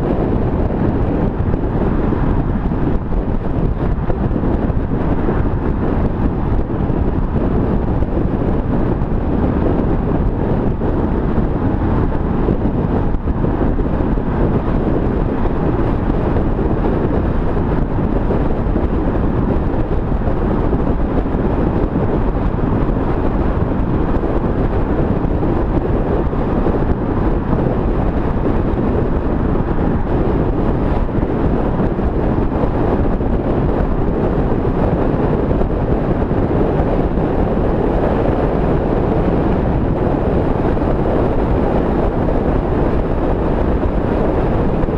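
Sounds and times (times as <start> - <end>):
car road and engine noise: 0.0 - 44.9
wind rush on microphone: 0.0 - 44.9.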